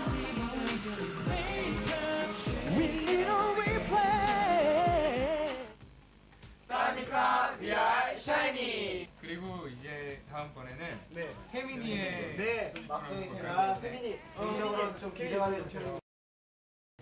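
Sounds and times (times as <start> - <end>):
pop song with vocals: 0.0 - 5.8.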